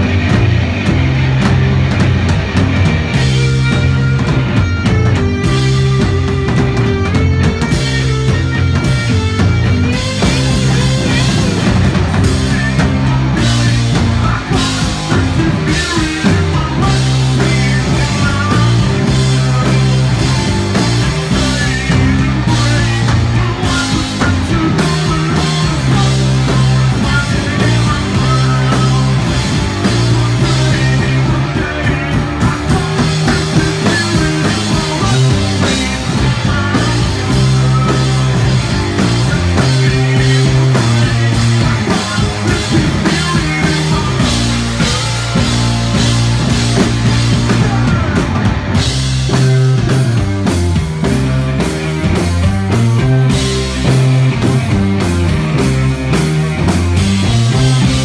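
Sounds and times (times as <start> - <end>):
distorted electric guitar: 0.0 - 58.0
heavy bass line: 0.0 - 58.0
pounding drums: 0.0 - 58.0.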